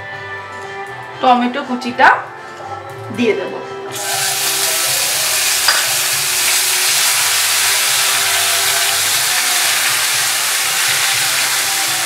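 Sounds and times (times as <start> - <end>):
tomato sizzling in hot oil: 3.9 - 12.0.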